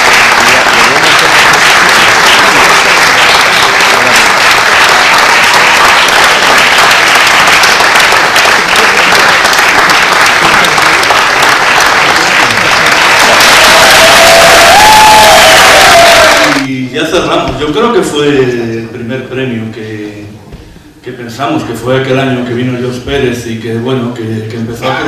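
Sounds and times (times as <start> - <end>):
audience applauding: 0.0 - 16.7.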